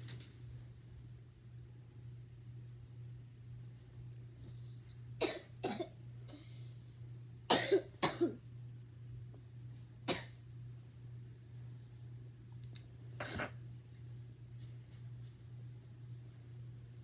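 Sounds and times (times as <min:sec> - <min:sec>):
steady low hum: 0:00.0 - 0:17.0
person coughing: 0:05.2 - 0:06.0, 0:07.5 - 0:08.4, 0:10.1 - 0:10.4, 0:13.2 - 0:13.6.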